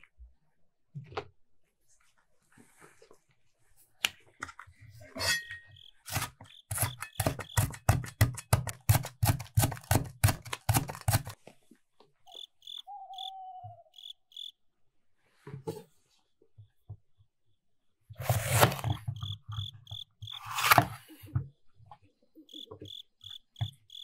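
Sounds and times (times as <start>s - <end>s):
handling and peeling sounds: 6.0s - 11.7s
knife chopping on wooden board: 6.1s - 11.4s.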